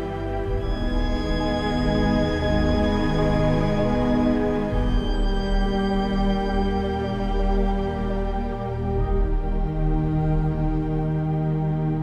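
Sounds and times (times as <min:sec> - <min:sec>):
ambient music chords: 0:00.0 - 0:12.0.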